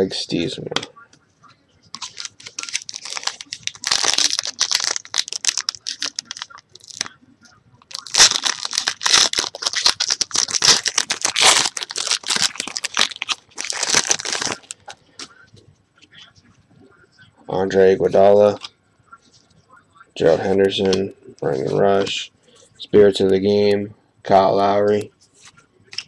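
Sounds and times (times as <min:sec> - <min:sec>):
foil wrapper crinkling: 0:02.0 - 0:07.2, 0:07.8 - 0:15.0.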